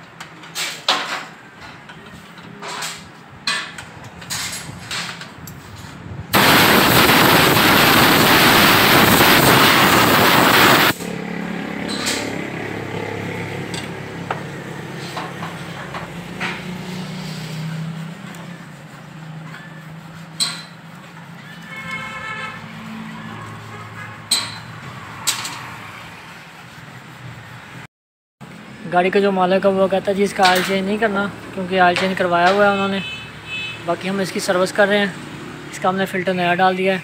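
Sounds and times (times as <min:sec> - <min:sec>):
compressed air blow gun hiss: 0:06.4 - 0:11.0.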